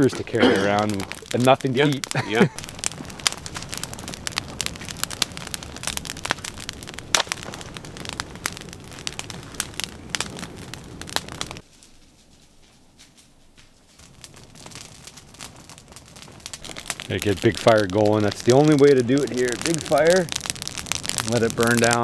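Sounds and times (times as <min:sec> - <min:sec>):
campfire crackling and popping: 0:00.0 - 0:22.0
low rush of flame: 0:00.0 - 0:22.0.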